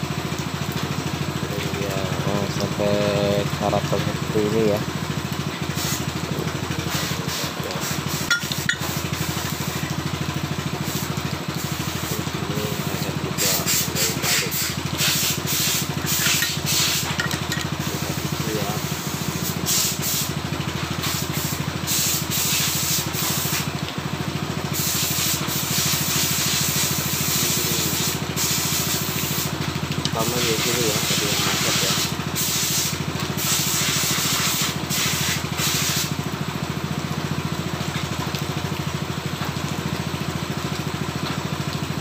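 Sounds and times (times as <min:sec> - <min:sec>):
low machine hum: 0:00.0 - 0:42.0.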